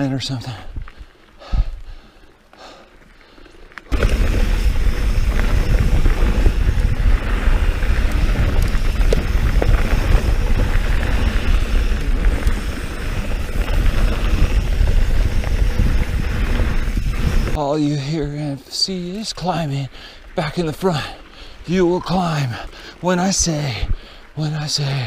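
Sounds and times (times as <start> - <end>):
bike tyres rumbling on trail: 0.0 - 25.0
bike rattling clicks and knocks: 3.3 - 17.6
wind buffeting microphone: 3.9 - 17.6.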